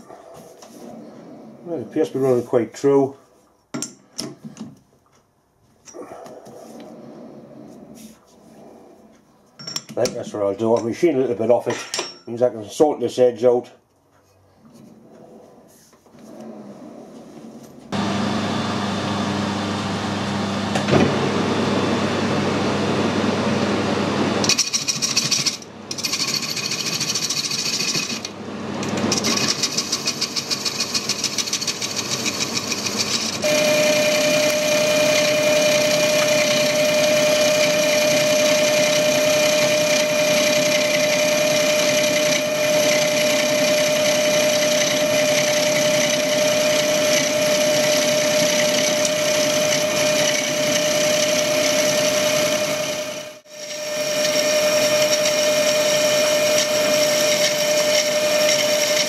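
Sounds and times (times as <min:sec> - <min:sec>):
metal lathe running: 0:24.4 - 0:59.0
high ringing tone of cutting tool: 0:24.5 - 0:28.3, 0:29.3 - 0:59.0.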